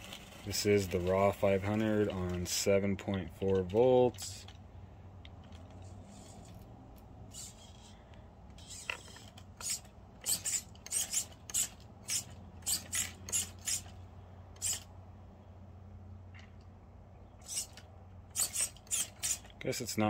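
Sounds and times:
steering servo buzzing: 0:07.3 - 0:14.9, 0:17.4 - 0:19.6.

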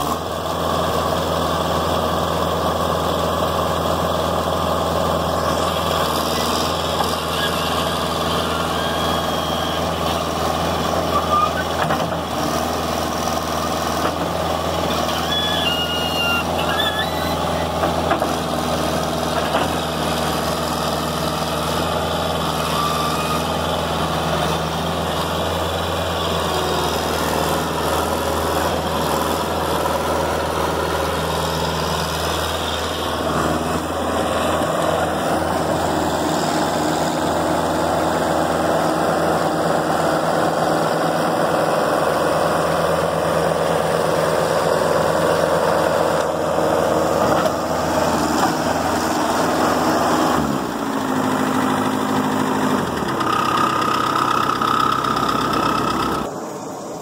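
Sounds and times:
skid steer loader engine running: 0:00.0 - 0:57.0.

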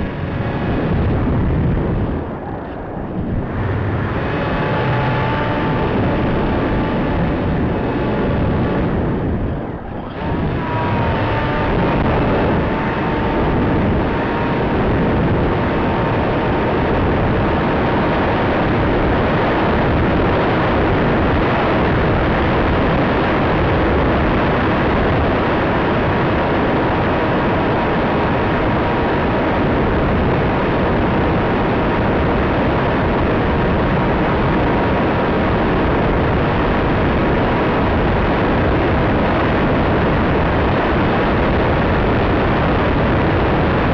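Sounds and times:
electric motor whine: 0:00.0 - 0:28.5
wind and propeller rush: 0:00.0 - 0:43.9.

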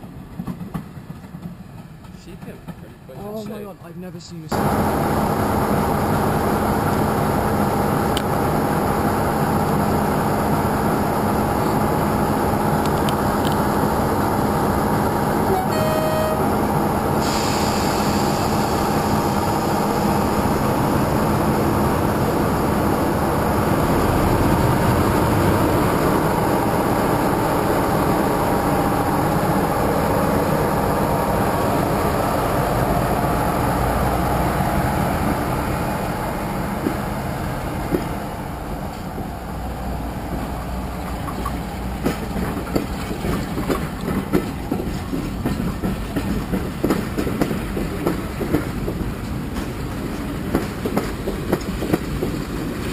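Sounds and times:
diesel locomotive engine drone: 0:00.0 - 0:52.9.

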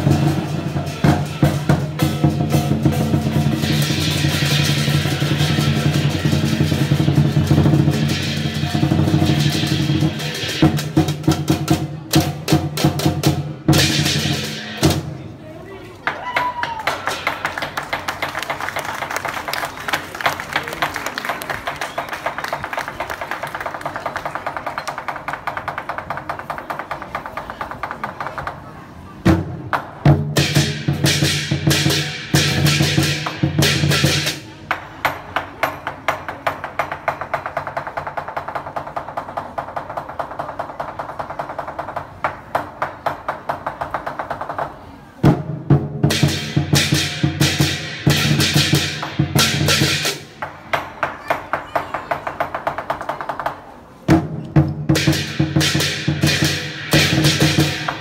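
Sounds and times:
large drum beating: 0:00.0 - 0:15.2.

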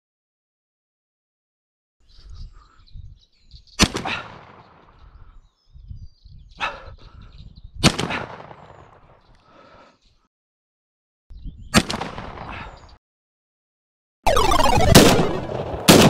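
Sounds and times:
shotgun shots with echo: 0:03.8 - 0:04.9, 0:07.8 - 0:09.0, 0:11.8 - 0:12.7, 0:14.8 - 0:16.0
high bird calls chirping: 0:04.9 - 0:07.8.

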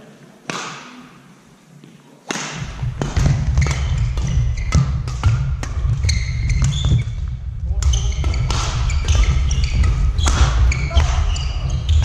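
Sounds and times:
badminton racket hits: 0:02.3 - 0:11.3
shoes squeaking on floor: 0:03.4 - 0:12.0.

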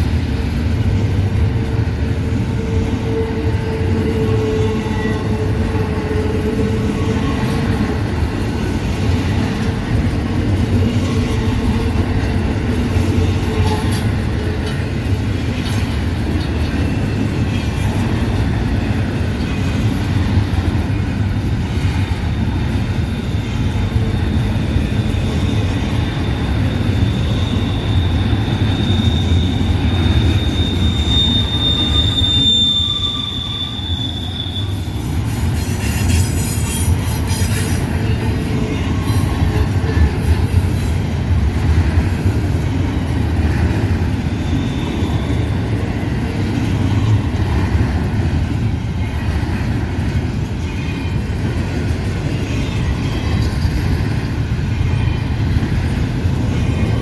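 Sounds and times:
train wheels rumbling on rails: 0:00.0 - 0:57.0
high-pitched wheel squeal: 0:23.4 - 0:37.8.

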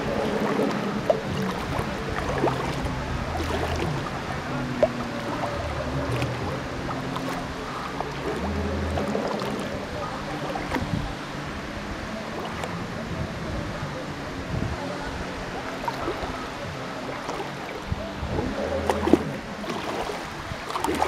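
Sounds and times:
waves lapping against kayak hull: 0:00.0 - 0:21.0.

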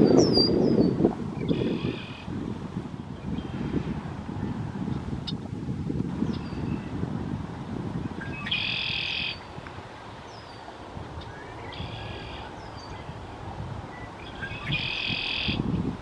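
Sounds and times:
wind on microphone: 0:00.0 - 0:16.0
blackbird singing: 0:08.2 - 0:09.4, 0:13.9 - 0:15.6.

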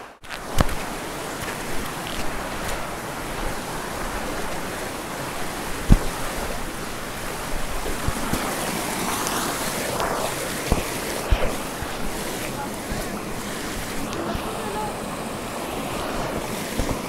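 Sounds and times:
stream rushing over boulders: 0:00.0 - 0:17.0
low thumps: 0:05.4 - 0:08.5.

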